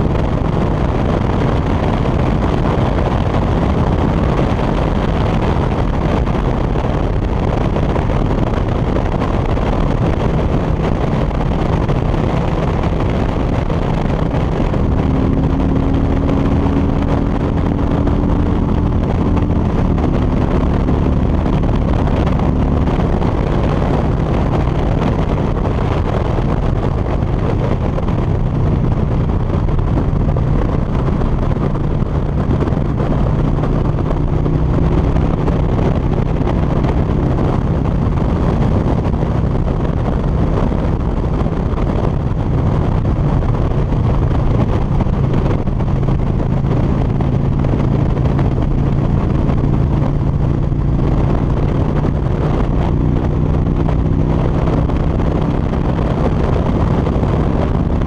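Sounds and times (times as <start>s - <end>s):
motorcycle engine running: 0.0s - 58.0s
wind rushing over microphone: 0.0s - 58.0s.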